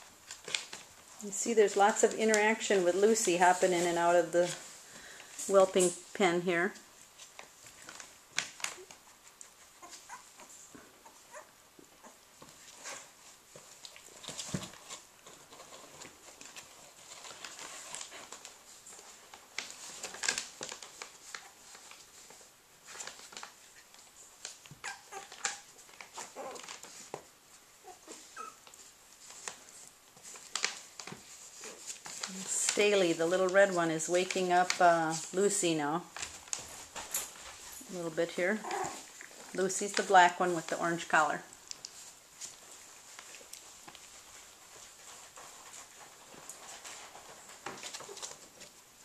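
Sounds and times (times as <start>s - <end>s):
scratching on soft bedding: 0.0s - 49.0s
puppies squeaking and whimpering: 24.8s - 26.8s, 27.8s - 28.7s, 38.6s - 39.2s.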